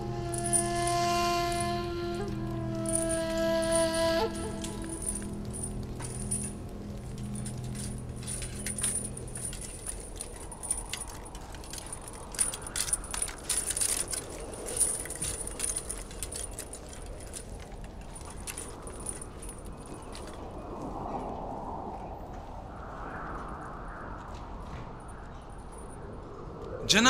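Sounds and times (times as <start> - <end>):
held low music chord: 0.0 - 11.2
metal clinking and jangling: 0.0 - 20.7.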